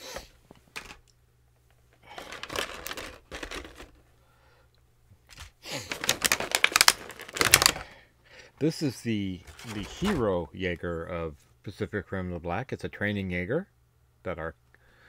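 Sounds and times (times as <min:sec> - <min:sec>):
plastic packaging crinkling: 0:02.0 - 0:04.0, 0:05.3 - 0:08.0, 0:09.4 - 0:10.3.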